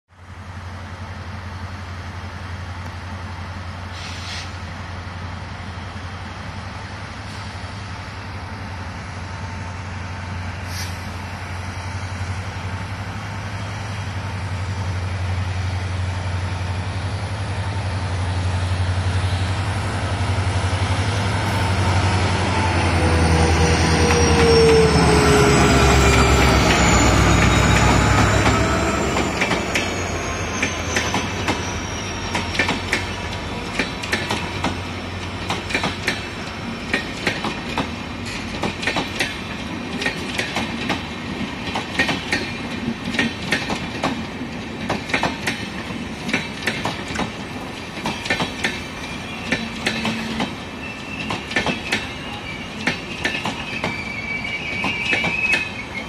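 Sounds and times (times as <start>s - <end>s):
diesel locomotive engine drone: 0.1s - 56.0s.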